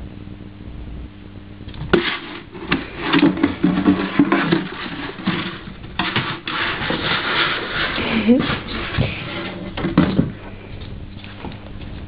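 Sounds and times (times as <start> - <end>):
plastic container scraping wooden floor: 1.8 - 10.5
plastic container knocking on floor: 9.8 - 10.4.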